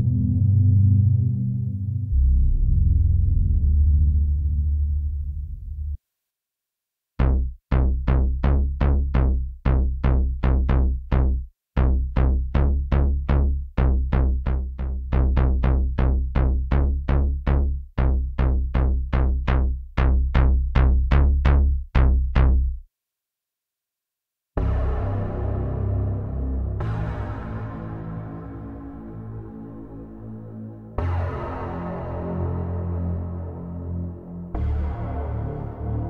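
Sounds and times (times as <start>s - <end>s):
plucky synth bass notes: 7.2s - 22.8s, 24.6s - 36.0s.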